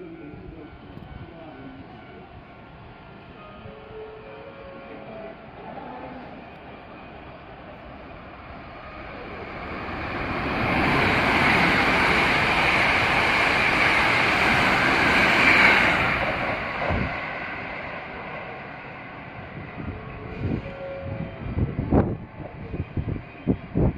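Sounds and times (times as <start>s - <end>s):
electric train passing: 0.0s - 23.9s.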